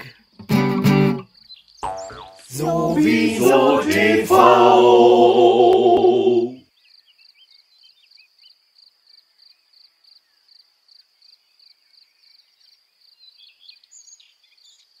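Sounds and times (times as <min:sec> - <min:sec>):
insect chirping: 0:01.2 - 0:02.6.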